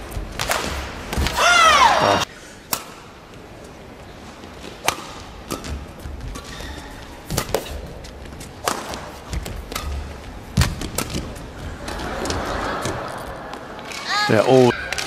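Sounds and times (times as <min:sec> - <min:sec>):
rackets striking shuttlecock: 0:02.7 - 0:03.2, 0:04.6 - 0:06.6, 0:07.2 - 0:08.0, 0:08.6 - 0:11.5.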